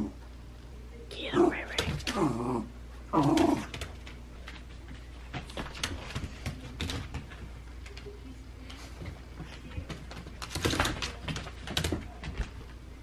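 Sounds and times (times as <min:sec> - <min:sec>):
claws scrabbling on hardwood floor: 0:03.2 - 0:12.9.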